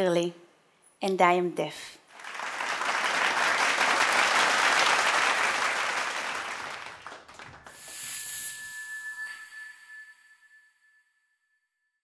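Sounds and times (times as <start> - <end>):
audience applauding: 2.1 - 7.9.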